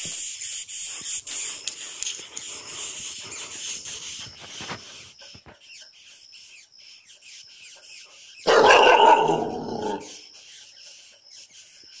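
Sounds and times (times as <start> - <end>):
dog barking: 8.5 - 10.1.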